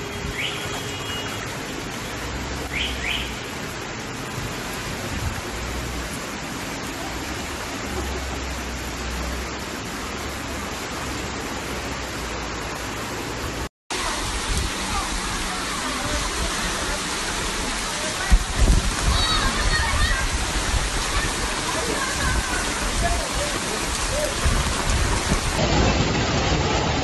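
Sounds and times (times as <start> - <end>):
heavy rain: 0.0 - 27.0
running floodwater: 0.0 - 27.0.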